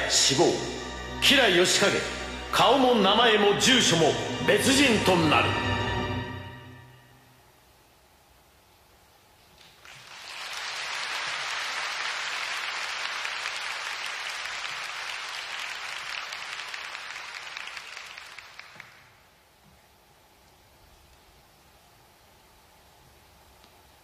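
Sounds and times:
audience applauding: 9.6s - 19.2s.

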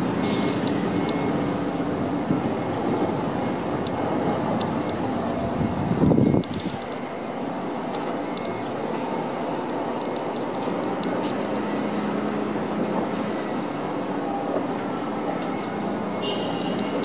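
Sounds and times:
diesel engines droning: 0.0s - 17.0s
faint ticks of site work: 3.7s - 17.0s.

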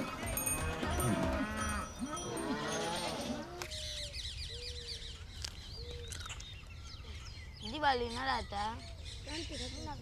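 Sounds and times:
cattle lowing: 0.0s - 3.7s
birds chirping: 0.0s - 10.0s.

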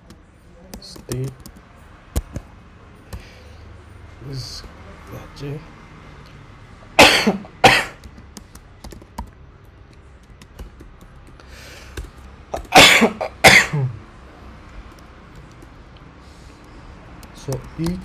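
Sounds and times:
man coughing: 7.0s - 8.0s, 12.6s - 14.0s.

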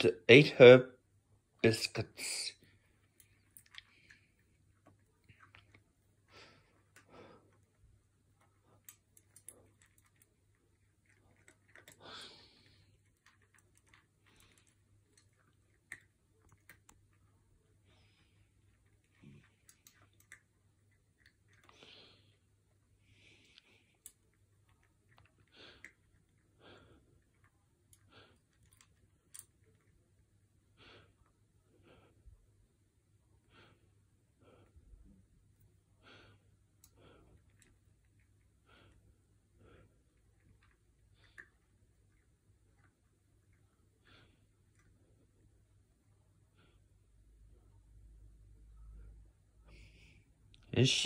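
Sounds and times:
low steady hum: 0.0s - 51.0s
soft breaths: 2.2s - 51.0s
cat crunching dry food: 2.7s - 17.5s, 18.2s - 30.1s.

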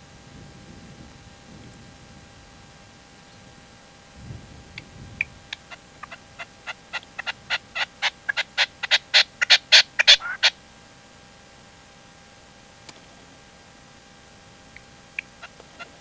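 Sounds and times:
partridge calling: 4.7s - 10.6s, 14.7s - 16.0s.

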